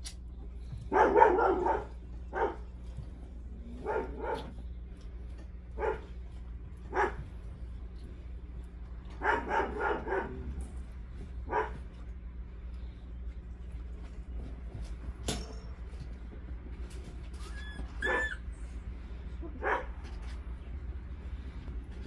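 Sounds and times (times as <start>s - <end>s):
puppies yapping: 17.2s - 18.9s.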